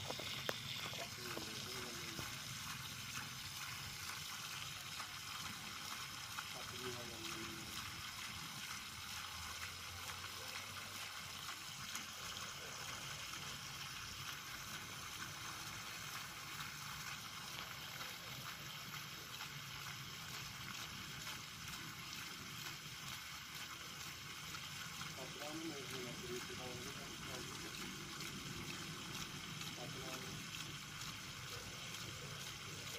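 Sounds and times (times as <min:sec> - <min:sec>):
water splashing onto grass: 0:00.0 - 0:32.9.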